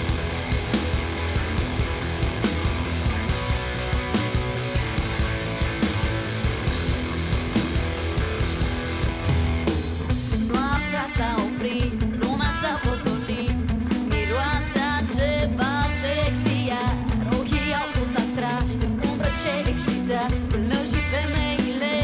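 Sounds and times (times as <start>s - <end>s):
steady drum beat: 0.0s - 12.4s
electric guitars: 0.0s - 22.0s
woman singing: 10.4s - 22.0s.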